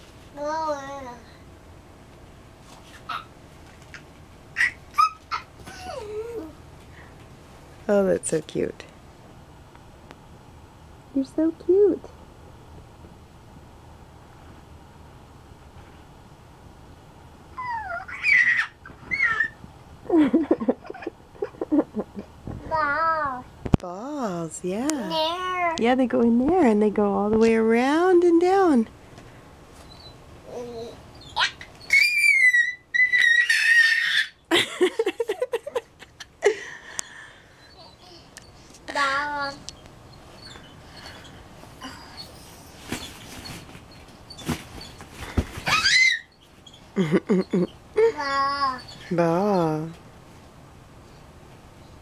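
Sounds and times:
toddler squealing: 0:03.1 - 0:03.3, 0:04.6 - 0:06.5, 0:17.6 - 0:19.6, 0:30.5 - 0:34.4, 0:45.6 - 0:46.4, 0:48.0 - 0:49.1
toddler giggling: 0:04.6 - 0:06.6, 0:17.6 - 0:22.9, 0:33.1 - 0:36.6, 0:47.0 - 0:49.0.

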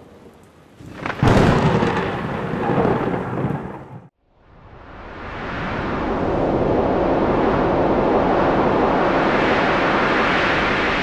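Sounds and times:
low thunder rumble: 0:00.8 - 0:04.1.

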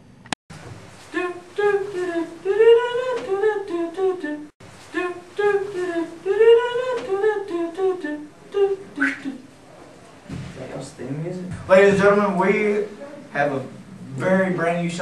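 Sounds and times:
person humming a tune: 0:01.1 - 0:09.4.

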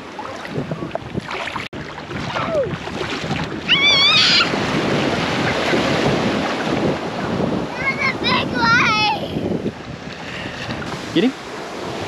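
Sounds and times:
small waves splashing in surf: 0:00.0 - 0:12.0
wind on microphone: 0:00.0 - 0:12.0
child squealing: 0:03.7 - 0:04.5.

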